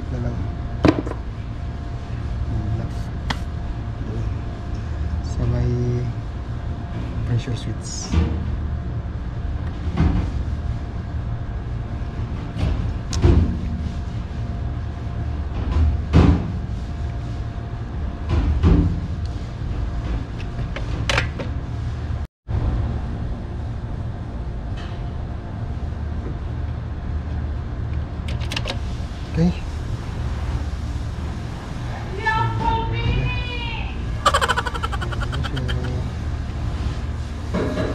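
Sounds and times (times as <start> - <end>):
steady low hum: 0.0 - 13.1, 34.0 - 37.5.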